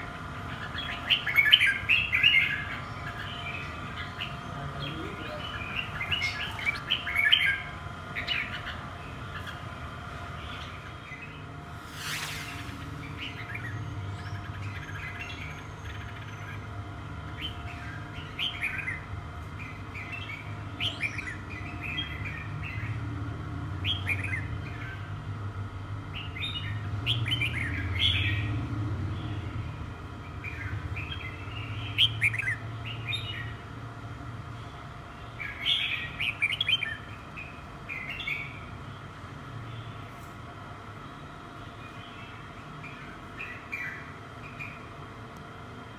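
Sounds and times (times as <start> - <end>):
steady low hum: 0.0 - 45.9
bird chirping: 0.4 - 9.7
brief whoosh: 11.8 - 12.9.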